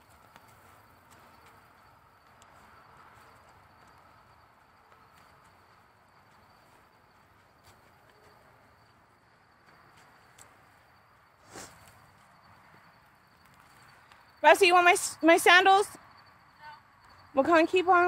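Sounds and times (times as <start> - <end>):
high thin insect drone: 0.0 - 18.0
faint ticks: 9.6 - 10.6.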